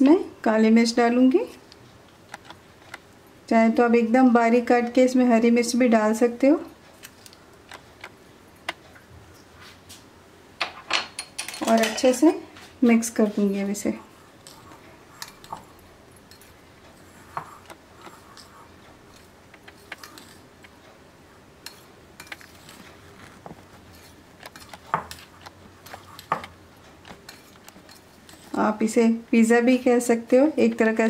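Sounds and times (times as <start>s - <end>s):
spoon clinking and scraping glass bowl: 21.6s - 22.9s, 23.9s - 26.4s, 27.2s - 28.5s.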